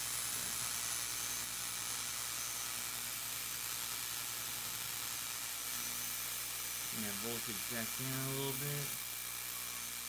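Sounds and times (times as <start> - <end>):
low electrical hum: 0.0 - 10.0
spark gap arcing hiss: 0.0 - 10.0.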